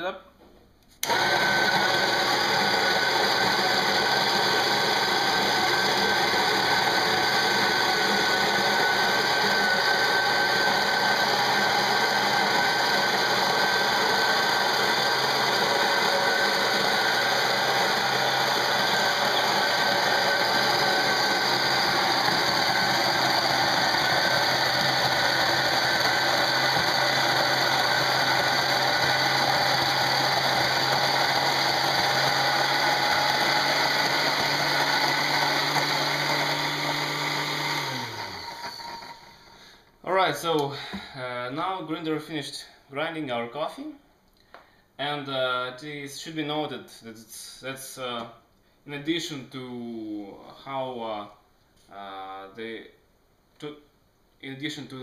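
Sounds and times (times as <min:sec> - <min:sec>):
coffee grinder grinding beans: 0:01.0 - 0:39.7.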